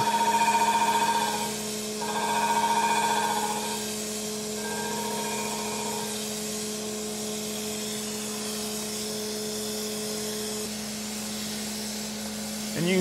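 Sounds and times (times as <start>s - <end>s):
high ringing tone: 0.0s - 6.4s
grinder machine hum: 0.0s - 8.4s.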